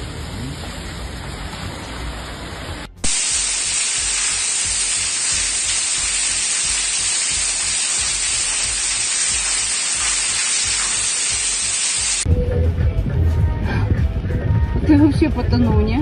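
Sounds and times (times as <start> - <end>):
rain on a flooded street: 0.0 - 12.2
rushing water hiss: 0.0 - 12.3.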